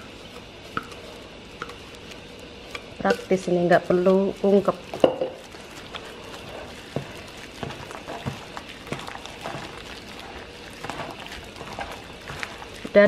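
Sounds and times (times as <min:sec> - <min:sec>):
wet squelching of hand kneading meat: 0:00.0 - 0:13.0.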